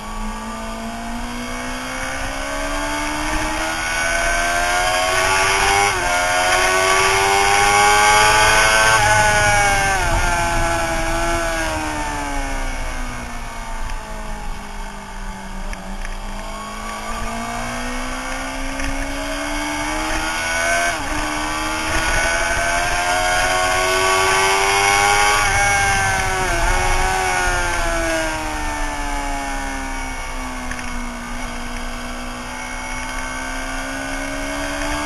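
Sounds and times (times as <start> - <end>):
motorcycle engine revving: 0.0 - 35.0.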